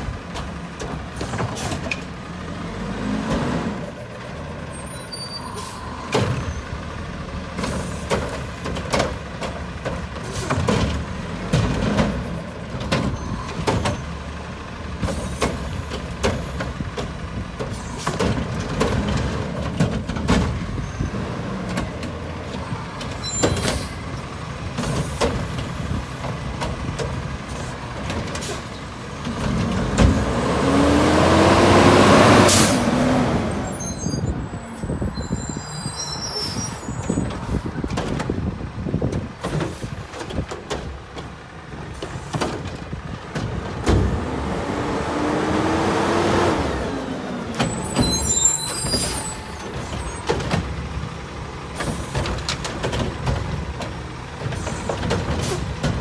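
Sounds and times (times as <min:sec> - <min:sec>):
garbage truck engine revving: 0:00.2 - 0:04.8, 0:06.0 - 0:34.3, 0:37.4 - 0:56.0
metal clanks and knocks: 0:51.8 - 0:56.0.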